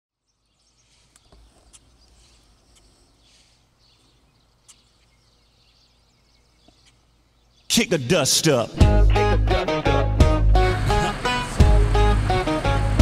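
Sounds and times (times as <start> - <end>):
small birds chirping: 0.1 - 8.0.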